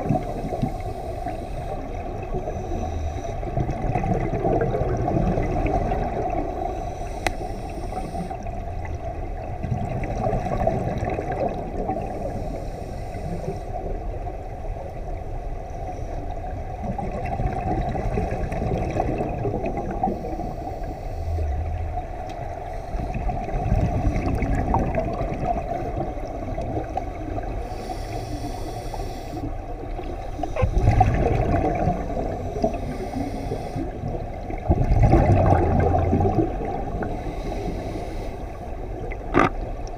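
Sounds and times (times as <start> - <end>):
exhaled bubble bursts: 3.5 - 6.4, 16.9 - 20.3, 23.1 - 27.4, 30.6 - 32.7, 34.0 - 37.1
underwater regulator bubbling: 16.9 - 29.5, 30.3 - 37.9, 39.1 - 39.9.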